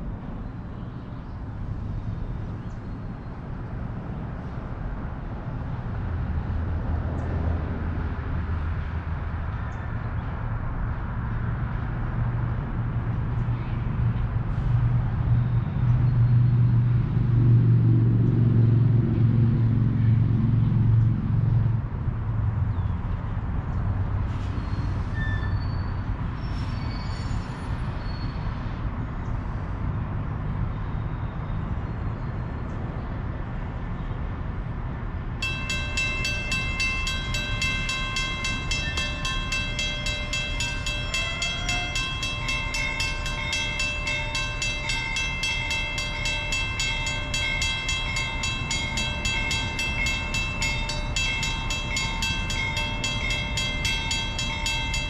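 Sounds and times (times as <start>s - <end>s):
crossing bell ringing: 35.4s - 55.0s.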